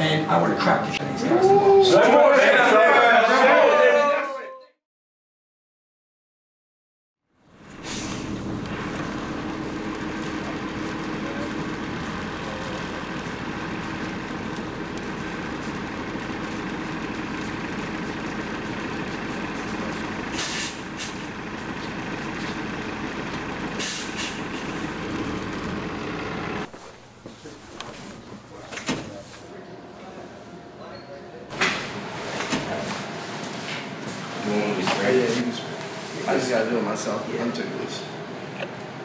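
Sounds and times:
large engine idling: 7.4 - 26.7
air release hisses: 7.8 - 8.3, 20.3 - 21.2, 23.8 - 24.7.

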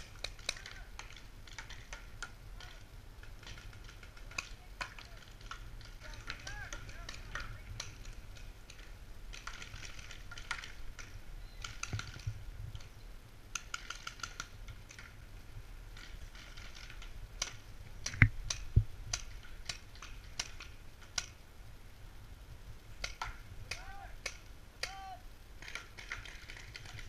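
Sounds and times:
paintball markers firing: 0.0 - 12.9, 13.5 - 15.1, 16.0 - 21.4, 23.0 - 27.0.

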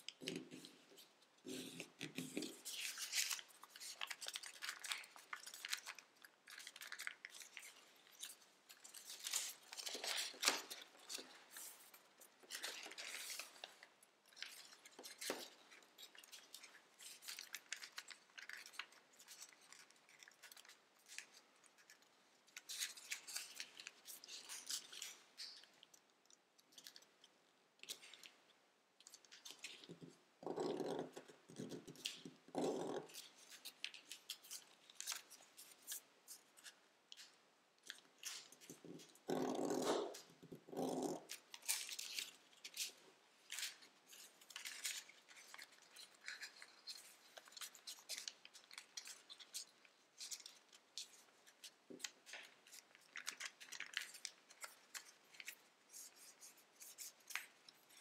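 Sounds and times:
foil paper crinkling: 1.6 - 25.7, 41.3 - 58.0.

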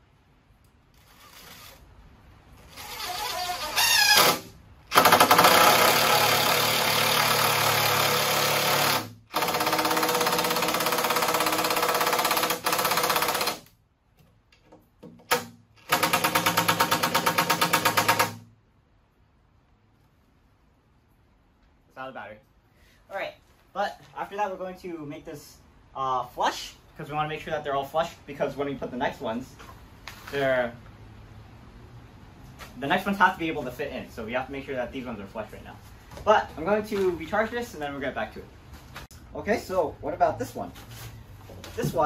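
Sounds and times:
impact driver hammering screws: 2.8 - 13.7, 15.2 - 18.4.

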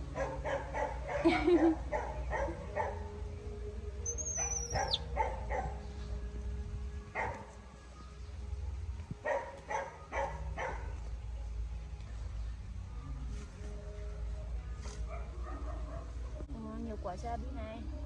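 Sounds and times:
baby monkey squealing: 4.0 - 5.1.

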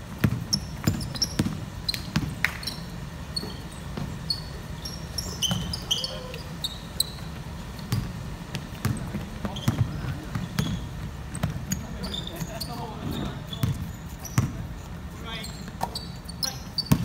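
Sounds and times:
sneakers squeaking: 0.0 - 17.0
basketball bouncing on wooden floor: 0.1 - 2.4, 3.4 - 4.3, 5.2 - 5.9, 7.8 - 12.6, 13.5 - 14.6, 16.8 - 17.0.

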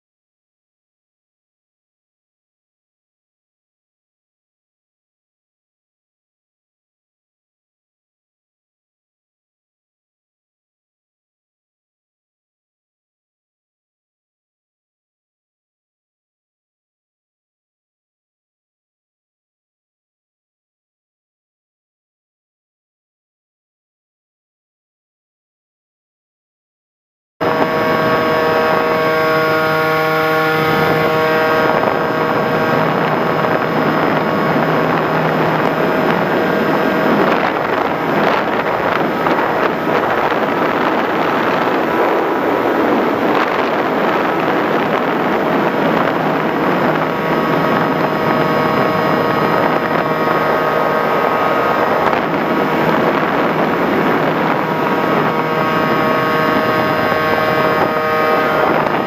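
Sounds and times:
model plane motor whine: 27.4 - 59.0
wind rushing on microphone: 27.4 - 59.0.

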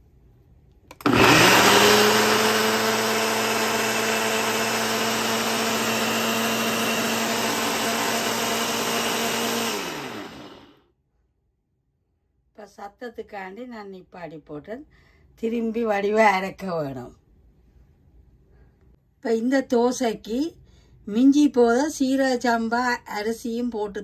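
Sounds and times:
blender motor grinding: 0.9 - 10.8.

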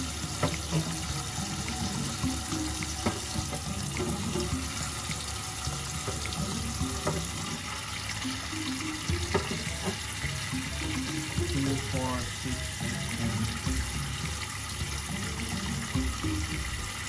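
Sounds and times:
tap water running into sink: 0.0 - 17.0
eggs knocking in sink: 0.2 - 7.6, 8.3 - 12.0.

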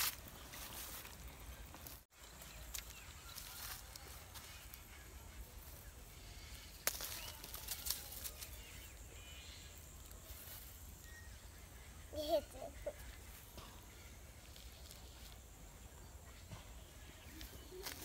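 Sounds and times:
clicks and rustles on dry leaves: 0.0 - 11.0, 17.2 - 18.0.

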